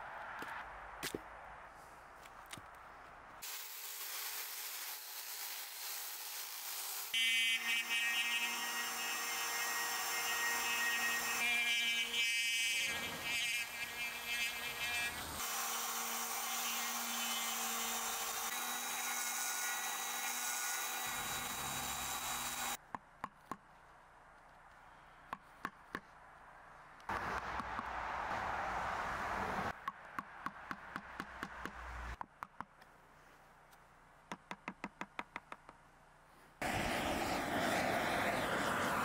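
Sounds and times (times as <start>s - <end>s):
rotary carving tool grinding wood: 3.4s - 22.8s.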